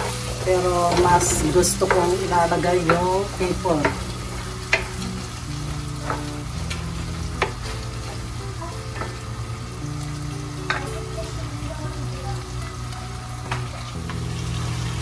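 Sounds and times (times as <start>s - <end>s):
wooden spatula stirring: 0.0s - 9.2s
onion and garlic sizzling in oil: 0.0s - 15.0s.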